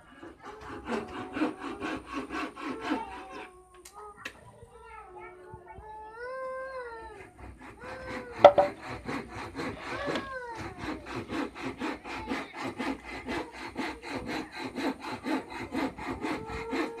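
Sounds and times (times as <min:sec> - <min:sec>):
hand saw cutting wood: 0:00.0 - 0:03.5, 0:07.3 - 0:17.0
sharp knock: 0:08.5 - 0:08.8.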